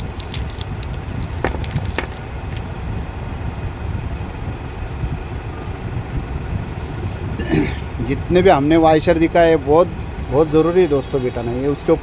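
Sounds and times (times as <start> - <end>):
small metal parts clicking: 0.0 - 2.7
low background rumble: 0.0 - 10.4.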